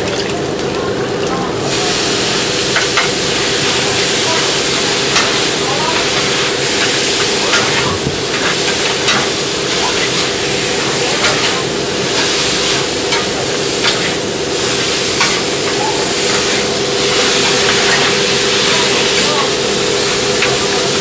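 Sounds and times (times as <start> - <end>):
food sizzling on griddle: 1.1 - 21.0.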